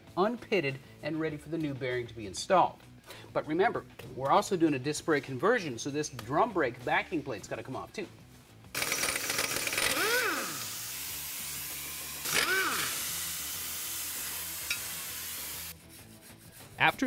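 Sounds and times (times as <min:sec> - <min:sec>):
air tool whine: 0:08.7 - 0:15.8
air tool hissing: 0:08.8 - 0:15.9.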